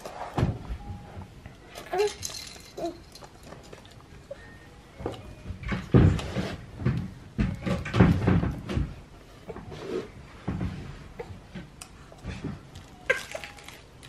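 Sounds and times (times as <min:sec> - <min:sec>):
plastic toy rings clattering: 0:01.8 - 0:04.4, 0:12.7 - 0:14.0.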